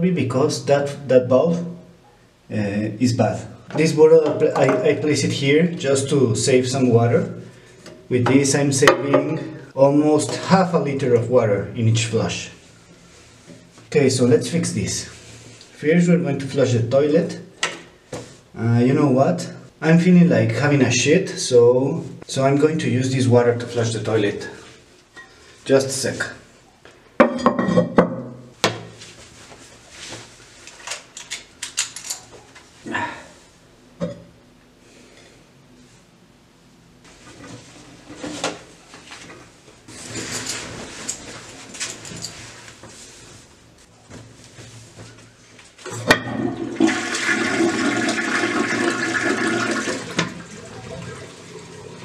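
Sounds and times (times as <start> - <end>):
toilet water rushing: 46.3 - 52.0.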